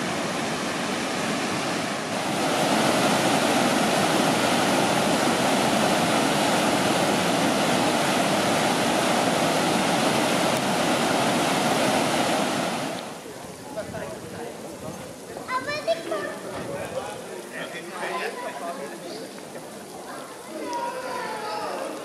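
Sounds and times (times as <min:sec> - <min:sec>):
water rushing over a weir: 0:00.0 - 0:17.4.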